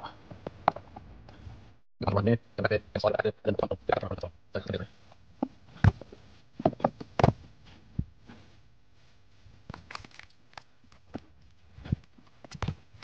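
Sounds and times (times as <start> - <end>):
person clambering on wooden joists: 5.4 - 8.5.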